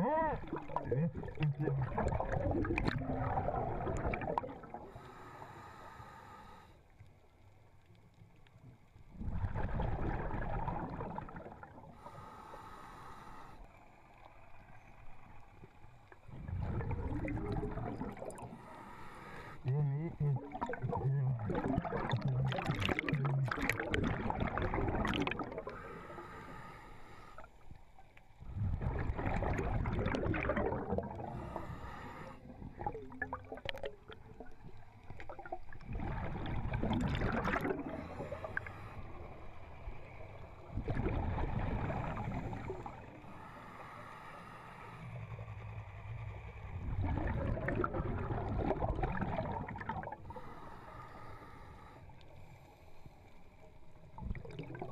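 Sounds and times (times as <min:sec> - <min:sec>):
bubbling exhaled air underwater: 0:00.0 - 0:05.0, 0:09.1 - 0:12.0, 0:16.2 - 0:18.7, 0:19.6 - 0:26.2, 0:28.4 - 0:39.5, 0:40.6 - 0:43.4, 0:46.2 - 0:50.6, 0:54.0 - 0:54.9
regulator hiss on inhale: 0:04.8 - 0:07.1, 0:11.9 - 0:14.1, 0:18.4 - 0:19.7, 0:25.6 - 0:27.9, 0:31.1 - 0:32.7, 0:37.9 - 0:40.5, 0:41.8 - 0:46.8, 0:50.2 - 0:54.2.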